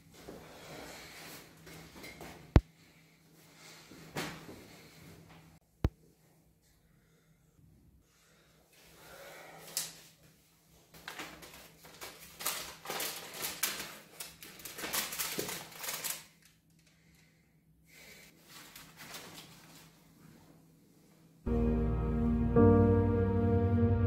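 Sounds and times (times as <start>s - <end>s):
paper envelope rustling: 11.0s - 16.6s, 18.4s - 20.1s.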